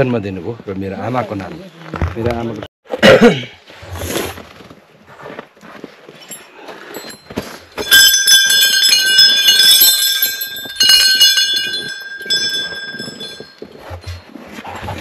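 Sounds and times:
small brass bells ringing: 6.3 - 14.2.

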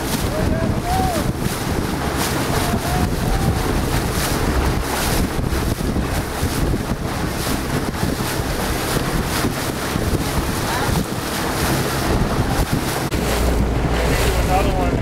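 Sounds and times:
water lapping and splashing: 0.0 - 15.0
wind buffeting microphone: 0.0 - 15.0.

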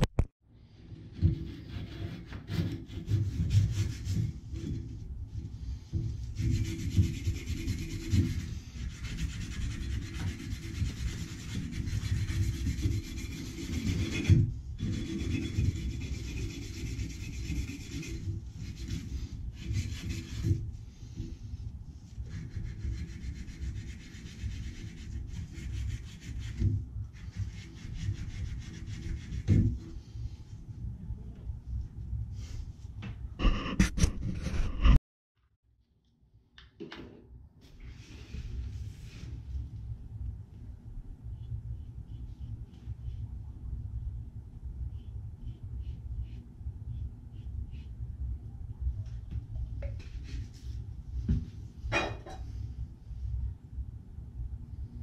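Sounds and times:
abrasive cloth scratching copper pipe: 1.0 - 30.1, 33.4 - 35.0.

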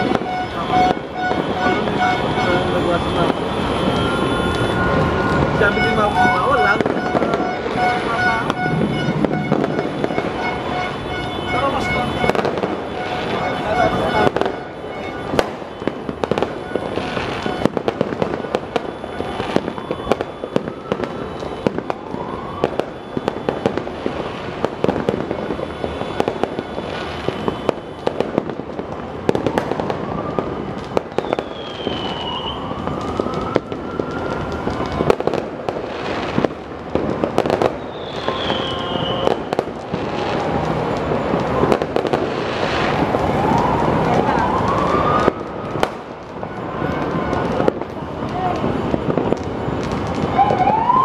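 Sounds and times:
fireworks popping and crackling: 0.0 - 51.0
whistling rocket: 31.1 - 35.2, 37.6 - 39.6.

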